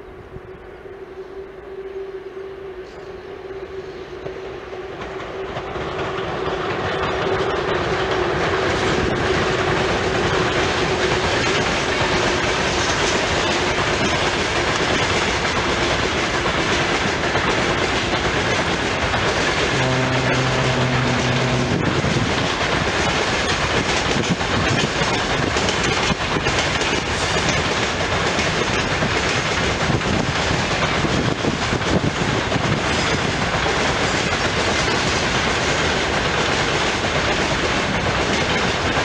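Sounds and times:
electric locomotive approaching: 0.0s - 39.0s
train wheels clattering on rails: 4.2s - 39.0s
steady hum: 19.8s - 22.3s.

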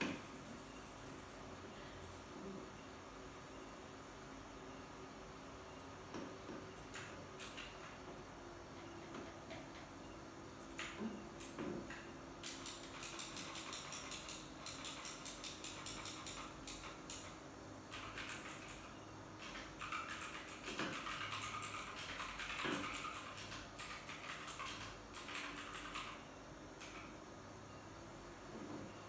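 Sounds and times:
keyboard typing: 0.0s - 2.5s, 5.8s - 9.9s, 10.6s - 27.2s.

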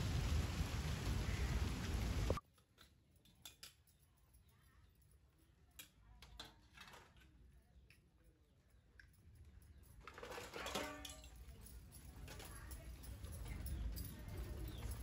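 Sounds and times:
steady rain falling: 0.0s - 2.4s
steel dishes clinking while scrubbed: 10.2s - 11.4s.

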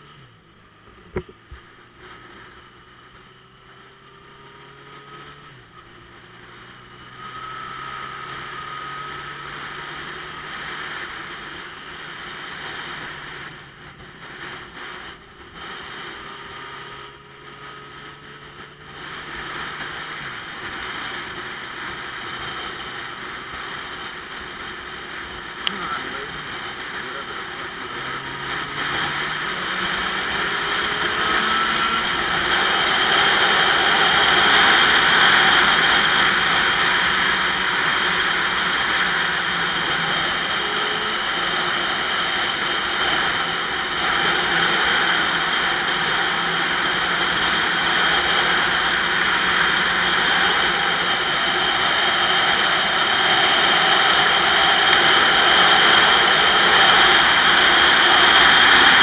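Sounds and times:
motorcycle engine running: 0.0s - 59.0s.

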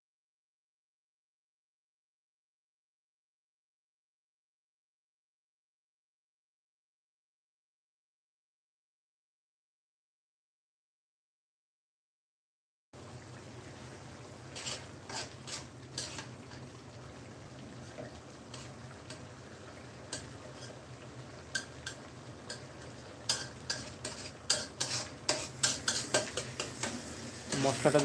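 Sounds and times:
simmering hiss: 13.0s - 28.0s
spatula scraping a wok: 14.3s - 17.0s, 17.8s - 28.0s.

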